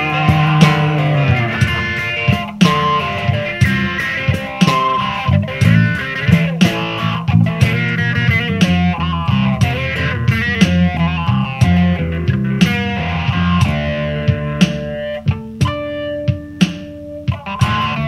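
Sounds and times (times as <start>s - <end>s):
bass guitar: 0.0s - 18.0s
electric guitar lead with bent notes: 0.0s - 18.0s
steady drum beat: 0.0s - 18.0s.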